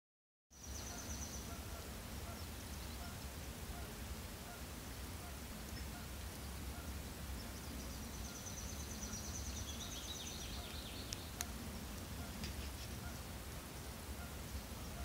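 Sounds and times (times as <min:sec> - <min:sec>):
songbird trilling: 0:00.6 - 0:03.2, 0:06.7 - 0:11.5.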